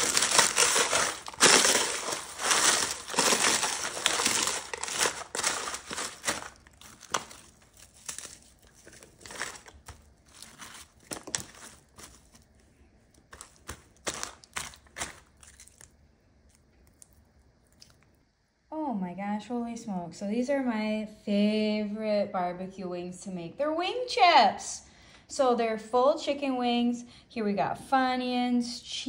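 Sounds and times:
chips crunching in a foil pan: 0.0s - 16.0s.

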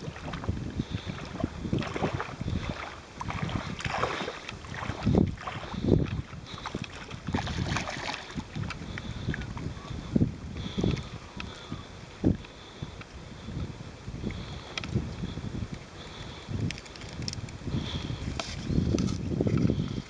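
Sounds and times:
fish thrashing and splashing water: 0.0s - 9.7s
wind buffeting microphone: 0.0s - 20.0s.

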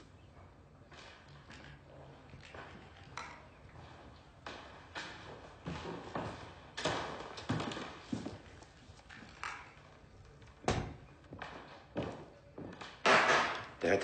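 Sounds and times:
objects knocking and tapping: 12.7s - 13.8s.

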